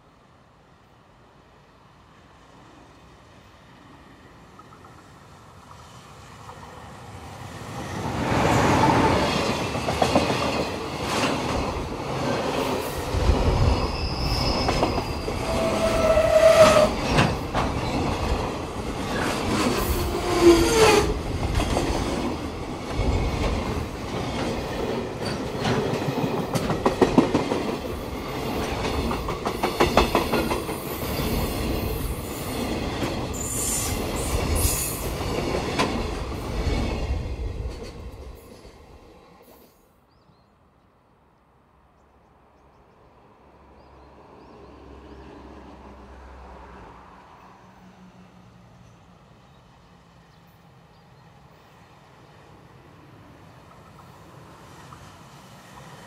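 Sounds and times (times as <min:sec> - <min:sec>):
freight train rumbling past: 0:00.9 - 0:39.7, 0:43.2 - 0:56.0
wheels clacking over rail joints: 0:09.1 - 0:33.4
wheel squeals: 0:13.7 - 0:18.0.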